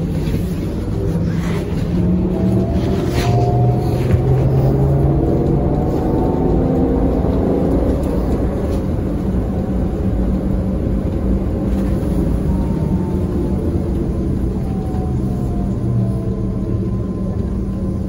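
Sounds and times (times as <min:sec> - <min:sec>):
trolleybus low rumble: 0:00.0 - 0:18.0.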